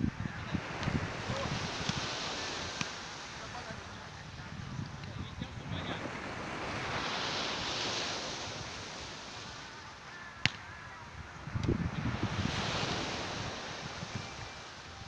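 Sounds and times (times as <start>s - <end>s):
volleyball smacked by hands: 1.8s - 2.0s, 2.8s - 3.0s, 10.4s - 10.7s.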